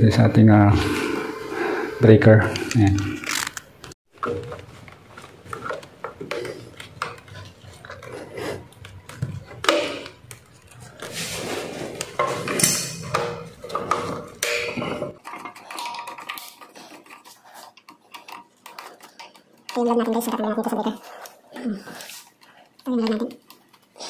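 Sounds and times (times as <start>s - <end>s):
screwdriver scraping and clicking metal: 4.2s - 20.4s.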